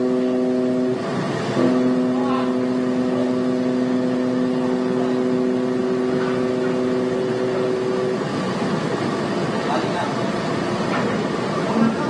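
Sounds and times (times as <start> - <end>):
ship's horn blast: 0.0 - 8.2.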